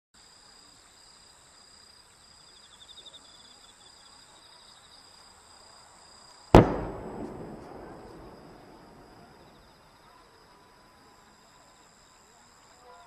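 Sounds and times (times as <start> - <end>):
insects chirping: 0.2 - 13.0
firework burst: 6.6 - 9.6.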